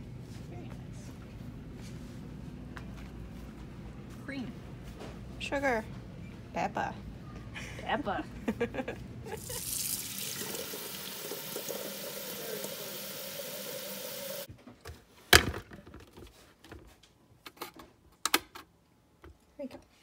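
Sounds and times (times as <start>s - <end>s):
tap water filling a kettle: 9.4s - 14.5s.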